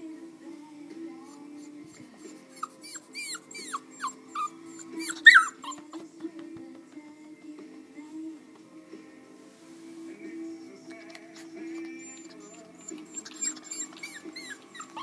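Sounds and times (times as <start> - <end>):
puppy whimpering: 1.2 - 6.3, 10.9 - 15.0.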